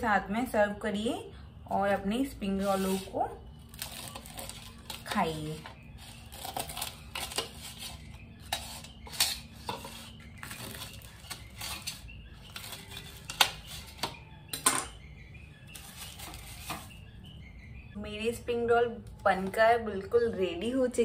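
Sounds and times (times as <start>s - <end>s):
knife cutting crispy spring rolls: 2.6s - 14.1s.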